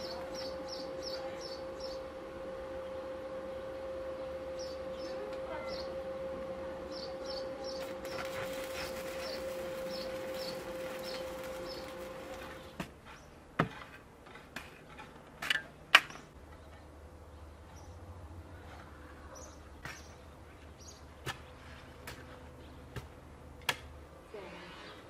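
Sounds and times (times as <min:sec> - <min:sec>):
arc welding buzz with crackle: 0:00.0 - 0:00.9, 0:07.2 - 0:12.8
small birds chirping: 0:00.0 - 0:02.1, 0:06.9 - 0:13.4, 0:19.3 - 0:21.8.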